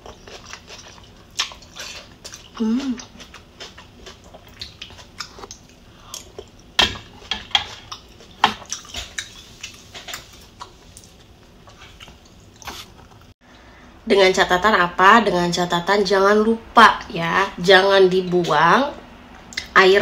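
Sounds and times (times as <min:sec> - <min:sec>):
chewing and wet mouth sounds: 0:00.0 - 0:06.8, 0:07.7 - 0:13.3.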